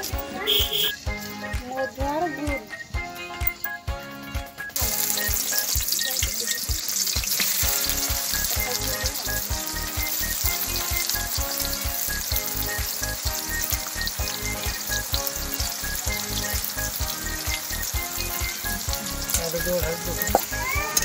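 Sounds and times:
background music with steady beat: 0.0 - 21.0
onions sizzling in hot oil: 4.7 - 21.0.

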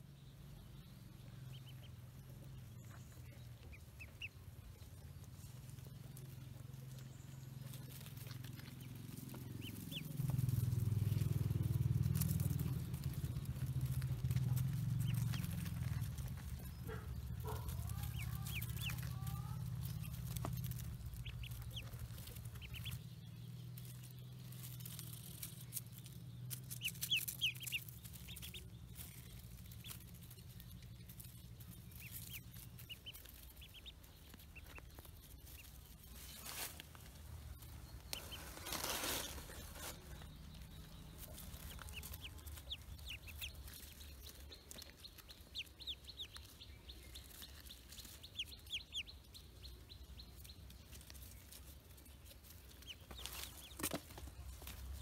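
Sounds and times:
ducklings peeping: 0.0 - 55.0
handling rustles: 34.3 - 42.6.

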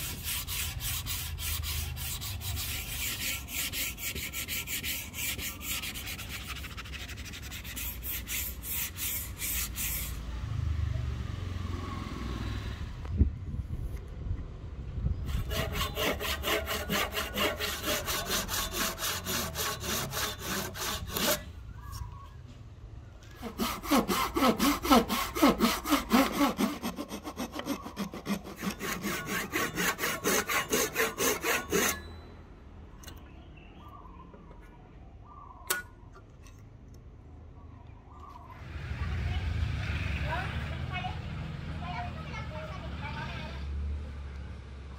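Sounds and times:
hand saw cutting wood: 0.0 - 10.2, 15.3 - 21.5, 23.3 - 32.1
sandpaper rubbing wood: 0.0 - 10.2, 15.3 - 21.4, 23.4 - 32.0.

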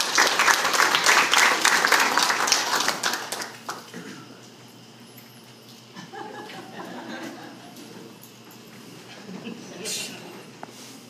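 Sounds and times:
audience applauding: 0.0 - 3.9.

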